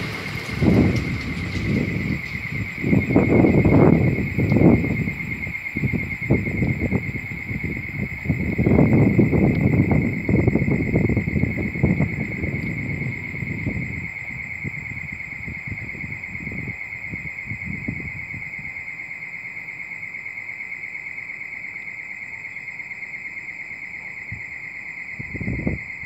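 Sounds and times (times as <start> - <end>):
train rumbling on rails: 0.0 - 15.0.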